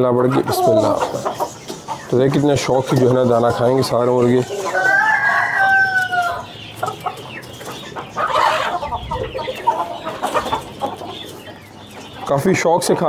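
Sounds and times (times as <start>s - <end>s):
roosters clucking: 0.0s - 13.0s
rooster crowing: 4.5s - 6.5s.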